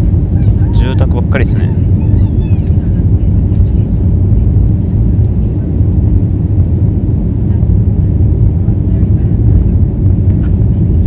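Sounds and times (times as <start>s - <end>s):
jet engines rumbling: 0.0s - 11.0s.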